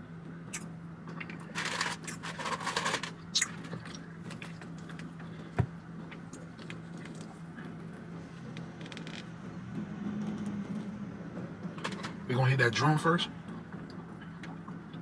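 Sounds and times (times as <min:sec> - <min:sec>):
steady low hum: 0:00.0 - 0:15.0
crinkling and rustling: 0:01.2 - 0:10.9.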